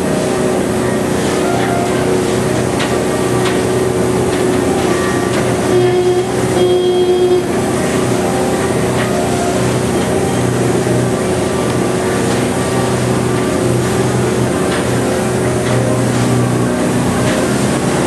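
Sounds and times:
boat engine running: 0.0 - 18.0
water rushing: 0.0 - 18.0
short pitched tones: 0.1 - 14.4.

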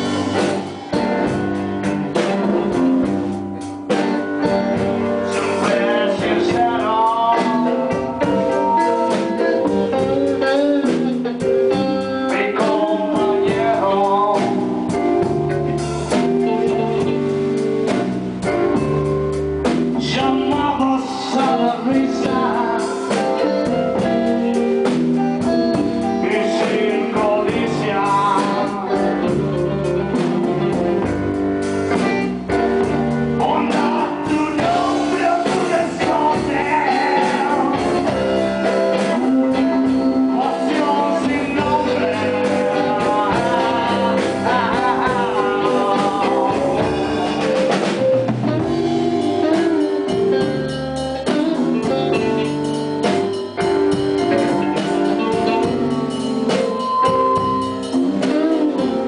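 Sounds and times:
blues band playing live: 0.0 - 59.0.

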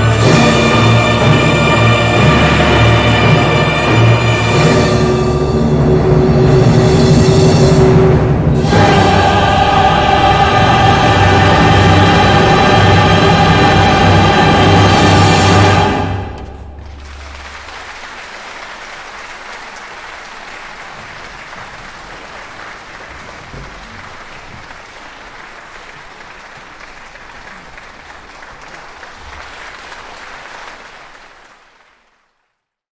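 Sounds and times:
audience applauding: 15.6 - 32.6.

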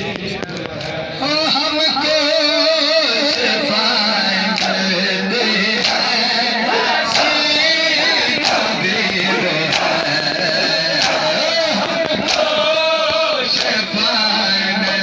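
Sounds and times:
crowd of men chanting: 0.9 - 15.0
hands slapping bare chests: 4.5 - 4.8, 5.8 - 6.2, 7.1 - 12.7.

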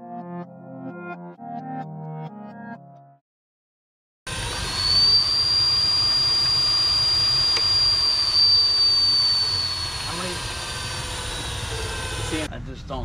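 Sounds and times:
electric motor high whistle: 4.3 - 12.5.

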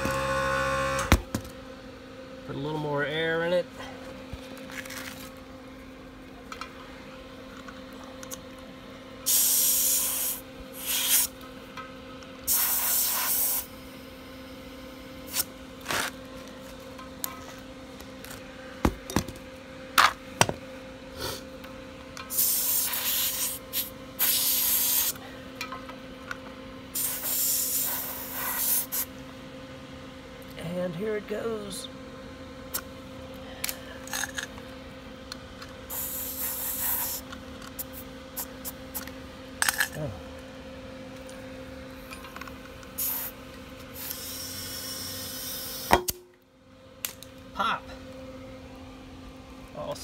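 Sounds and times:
short hissing sprays: 9.3 - 11.3, 12.5 - 13.7, 22.3 - 25.2, 27.0 - 29.1, 35.9 - 37.2, 43.0 - 43.4.

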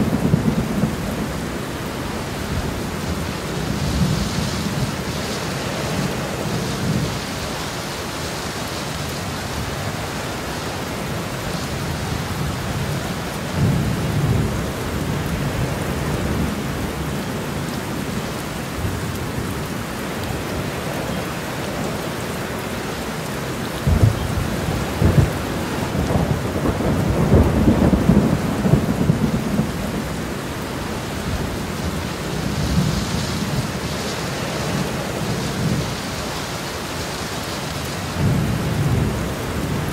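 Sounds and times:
thunder rumbling and cracking: 0.0 - 7.2, 23.8 - 33.9, 38.1 - 39.9
steady rain: 0.0 - 39.9.

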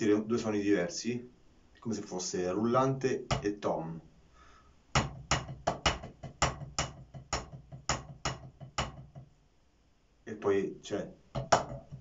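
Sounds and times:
drumsticks on practice pads: 5.0 - 9.3, 11.3 - 12.0.

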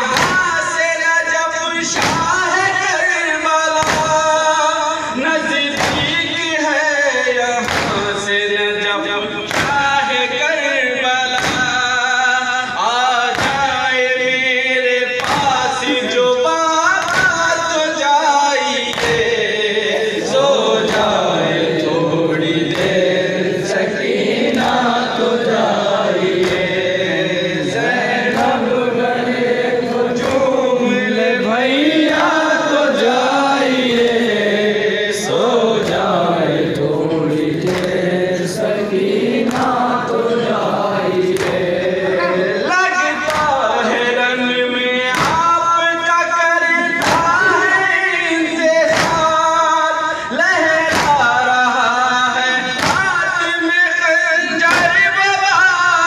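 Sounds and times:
men chanting together: 0.0 - 56.0
hand slaps on chests: 0.1 - 0.8, 1.9 - 2.6, 3.7 - 4.4, 5.7 - 6.3, 7.6 - 8.3, 9.5 - 10.0, 11.3 - 11.9, 13.2 - 13.9, 15.2 - 16.0, 17.0 - 17.7, 18.9 - 19.6, 20.6 - 21.9, 22.6 - 27.0, 27.9 - 29.4, 30.1 - 30.7, 31.8 - 32.7, 33.7 - 34.5, 35.7 - 36.9, 37.5 - 38.2, 38.8 - 40.2, 41.0 - 41.9, 43.2 - 43.6, 45.1 - 45.6, 47.0 - 47.6, 48.8 - 49.5, 50.8 - 51.4, 52.7 - 53.4, 54.6 - 55.2.

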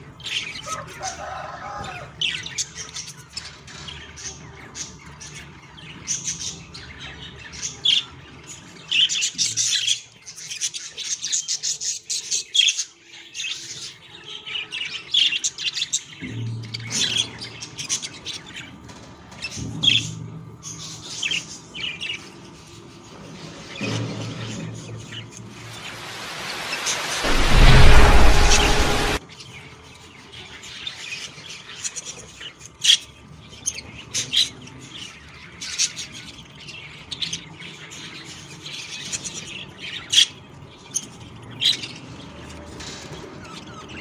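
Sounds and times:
low hum: 25.5 - 29.2.

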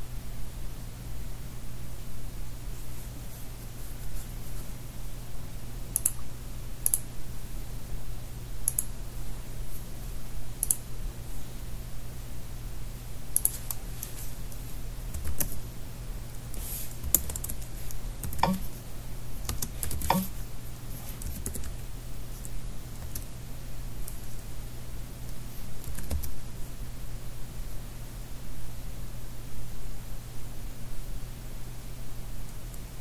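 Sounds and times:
computer keyboard typing: 5.9 - 6.2, 8.6 - 8.9, 13.4 - 14.2, 15.1 - 15.6, 17.0 - 18.7, 19.4 - 20.4, 21.1 - 21.8, 23.0 - 23.3, 25.8 - 26.4.

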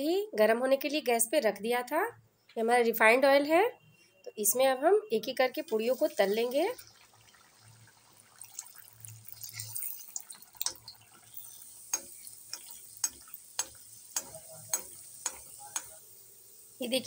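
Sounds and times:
food deep-frying in hot oil: 5.3 - 17.0
sharp crackling pops: 9.4 - 16.0.

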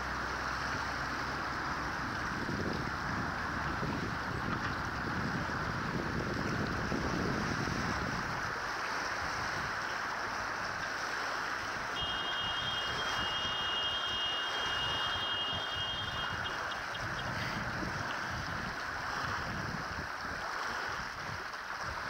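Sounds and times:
water washing against rocks: 0.0 - 22.0
wind buffeting microphone: 0.0 - 22.0
thin high tone: 12.0 - 17.3.

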